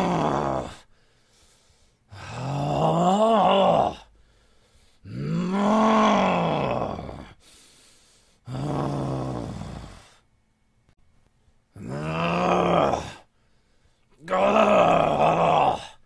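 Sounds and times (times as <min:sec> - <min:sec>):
man's angry wordless vocal sounds: 0:00.0 - 0:00.8, 0:02.2 - 0:04.1, 0:05.1 - 0:07.4, 0:11.8 - 0:13.3, 0:14.1 - 0:16.0.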